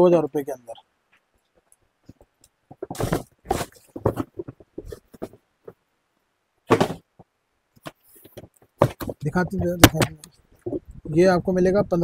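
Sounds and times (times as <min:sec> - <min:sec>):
cardboard boxes scraping: 0:02.8 - 0:05.4.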